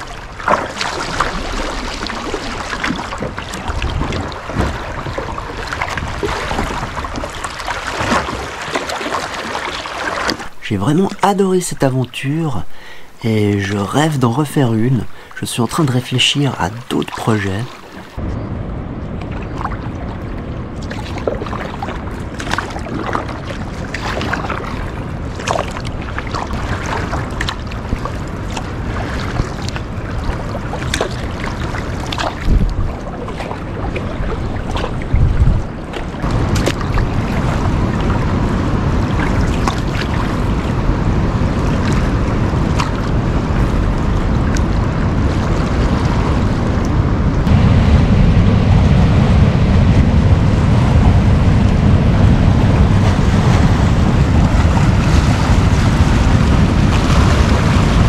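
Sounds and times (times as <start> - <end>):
wind buffeting microphone: 0.0 - 11.1, 12.8 - 58.0
water splashes and drips: 0.0 - 11.4, 19.2 - 38.3, 39.0 - 40.8, 41.8 - 46.1.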